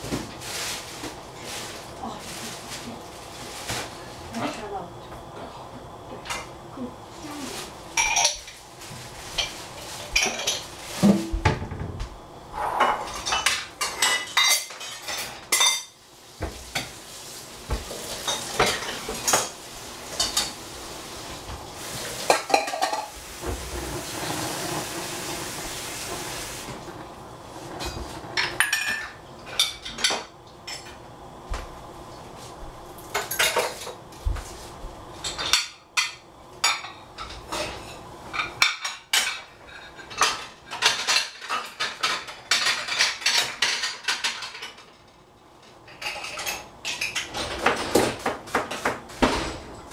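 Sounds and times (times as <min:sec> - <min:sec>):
metal cookware clinking and scraping: 0:08.0 - 0:08.6, 0:12.6 - 0:16.0, 0:18.2 - 0:20.6, 0:22.2 - 0:23.2, 0:27.8 - 0:31.0, 0:33.1 - 0:34.0, 0:35.2 - 0:45.2, 0:45.9 - 0:48.2
steady hiss: 0:12.4 - 0:28.8.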